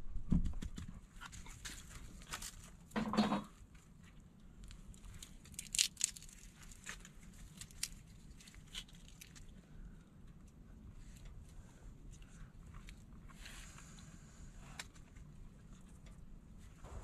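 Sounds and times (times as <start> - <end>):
crinkling and tearing: 1.2 - 2.9, 3.8 - 9.7
sharp crackles: 4.9 - 9.6.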